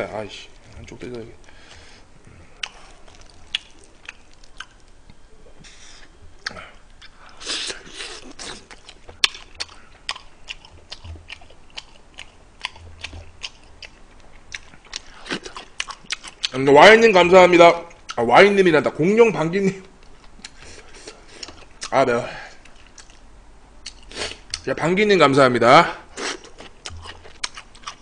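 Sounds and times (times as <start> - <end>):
biting and chewing fried chicken: 6.4 - 16.6, 26.1 - 28.0.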